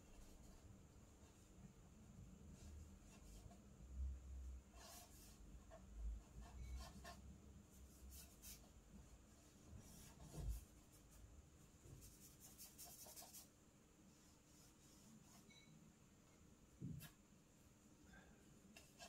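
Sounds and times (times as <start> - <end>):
charcoal scratching on paper: 4.7 - 8.7, 9.8 - 11.2, 12.0 - 13.5, 14.1 - 15.7, 18.7 - 19.0.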